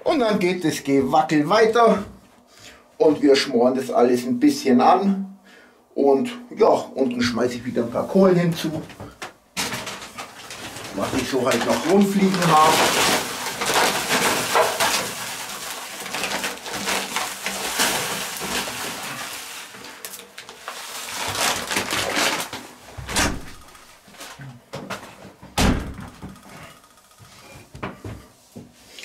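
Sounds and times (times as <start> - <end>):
charcoal rustling and scraping: 9.6 - 23.1.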